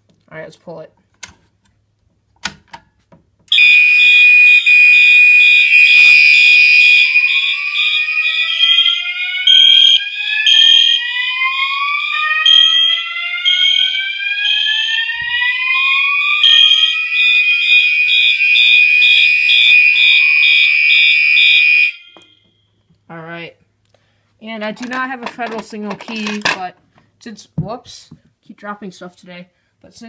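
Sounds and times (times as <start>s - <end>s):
fire alarm sounding: 3.5s - 22.8s.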